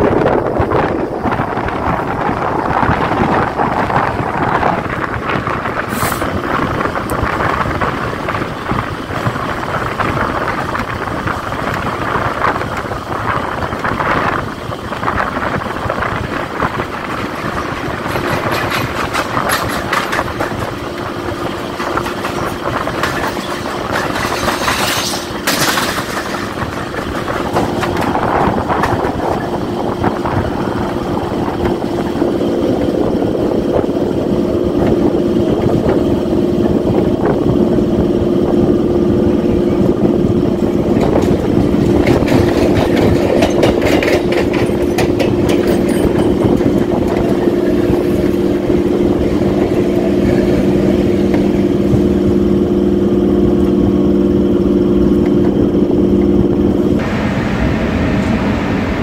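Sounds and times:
electric train humming and rumbling: 0:00.0 - 0:59.0
rapid clicking and clatter: 0:06.7 - 0:33.0, 0:40.6 - 0:52.2.

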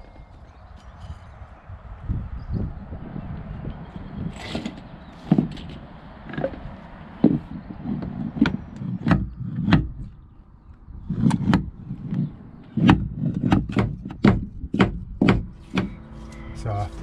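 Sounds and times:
wooden mallet knocking on timber: 0:07.2 - 0:09.9, 0:12.8 - 0:16.0.

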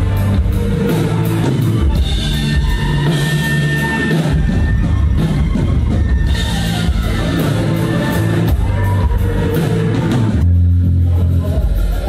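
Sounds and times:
rock band playing live: 0:00.0 - 0:12.0.

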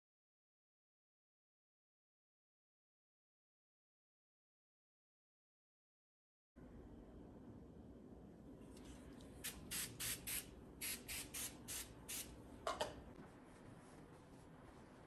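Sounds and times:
aerosol spray hissing: 0:09.4 - 0:12.3.

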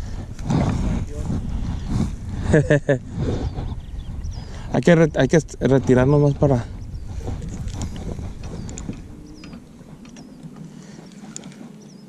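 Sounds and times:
low rumble: 0:00.0 - 0:11.0.

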